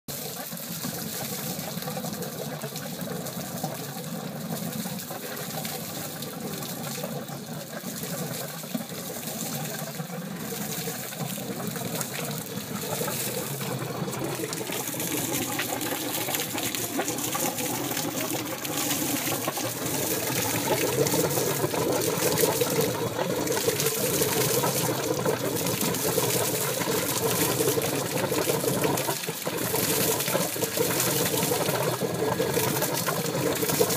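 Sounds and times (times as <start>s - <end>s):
water splashing on pavement: 0.1s - 33.9s
wet exhaust burbling: 0.1s - 33.9s.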